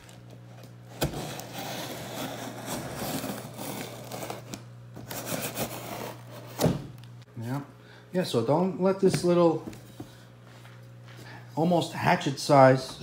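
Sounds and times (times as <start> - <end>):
scraping cardboard: 0.9 - 6.8.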